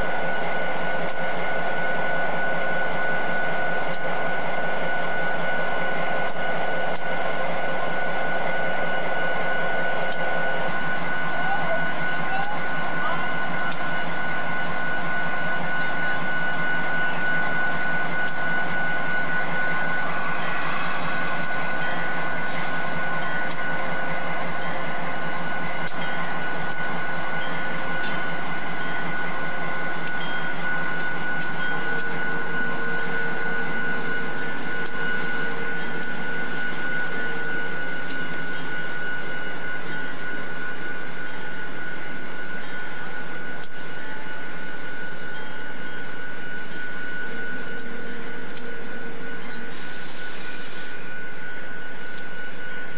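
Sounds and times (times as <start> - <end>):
locomotive engine idling: 0.0 - 38.7.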